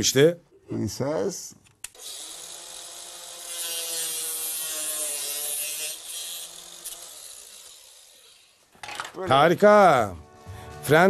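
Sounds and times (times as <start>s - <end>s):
angle grinder cutting metal: 1.9s - 8.7s.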